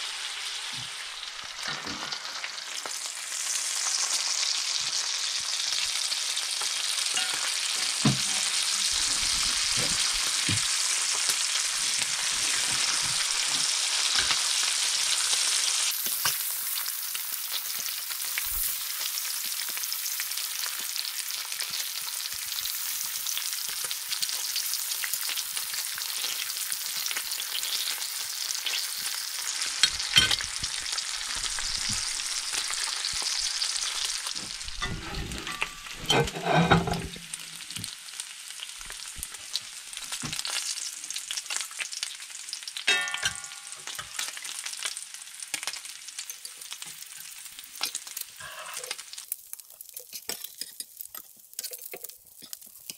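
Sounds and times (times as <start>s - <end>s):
bacon sizzling in frying pan: 0.0s - 52.9s
metal tongs clicking on pan: 42.9s - 44.4s.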